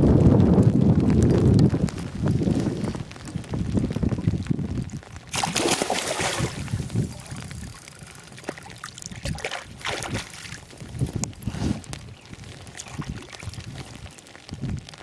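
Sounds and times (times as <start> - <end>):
wind rumbling on microphone: 0.0 - 15.0
hand plunging into water: 5.3 - 6.7
fish thrashing and splashing: 5.3 - 10.7, 12.7 - 13.7.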